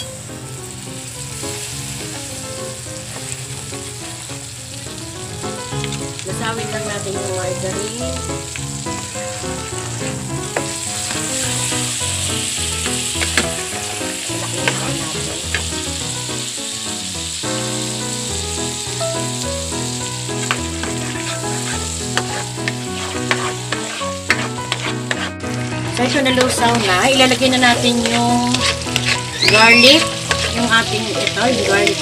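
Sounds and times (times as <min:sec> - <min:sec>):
margarine sizzling in frying pan: 0:00.0 - 0:32.0
spatula scraping pan: 0:09.1 - 0:12.0, 0:12.9 - 0:15.7, 0:19.8 - 0:32.0.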